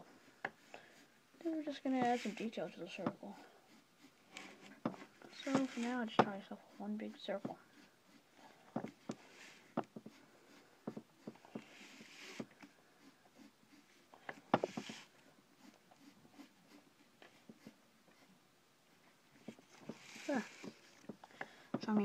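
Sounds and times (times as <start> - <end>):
pencil scratching on paper: 0.2 - 22.0
light taps and knocks: 19.4 - 22.0.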